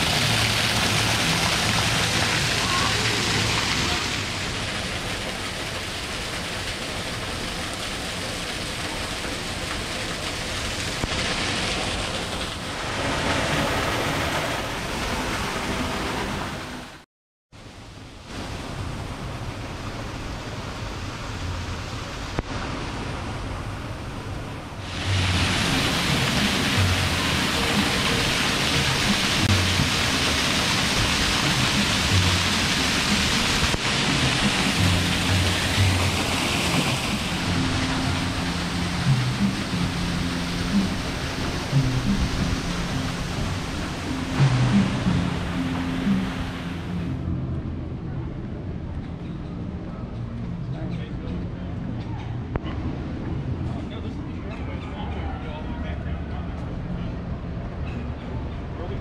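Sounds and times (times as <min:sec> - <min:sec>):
waterfall splashing on rocks: 0:00.0 - 0:16.6, 0:17.8 - 0:23.6, 0:24.8 - 0:46.9
faint background music: 0:24.9 - 0:59.0.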